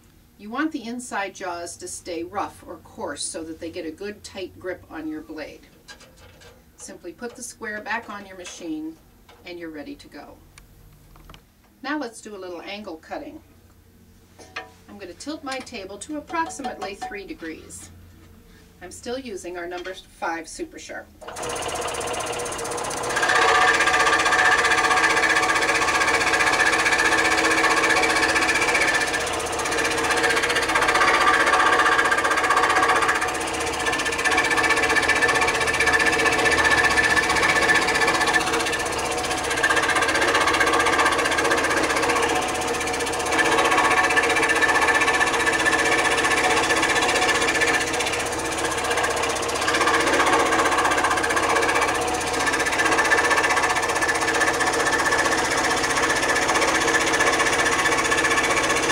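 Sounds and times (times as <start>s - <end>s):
scroll saw cutting wood: 21.2s - 58.9s.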